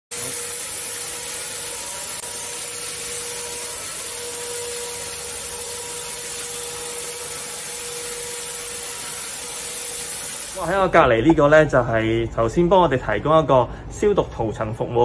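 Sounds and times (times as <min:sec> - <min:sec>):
electric sprayer motor running: 0:00.1 - 0:11.0.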